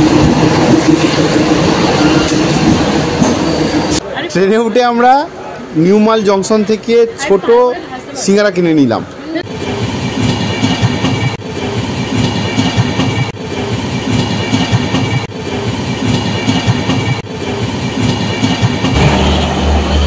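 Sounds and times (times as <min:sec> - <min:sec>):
train wheels clicking over rail joints: 0:09.5 - 0:19.8.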